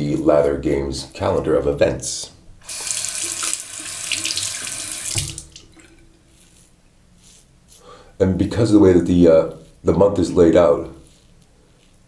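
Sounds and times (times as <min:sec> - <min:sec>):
tap running into sink: 0:02.7 - 0:05.9.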